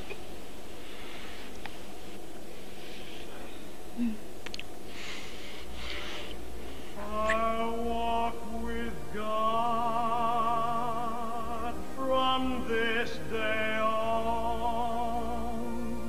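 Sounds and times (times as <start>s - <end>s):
low sustained accompaniment: 6.5s - 16.0s
operatic singing voice: 7.0s - 16.0s.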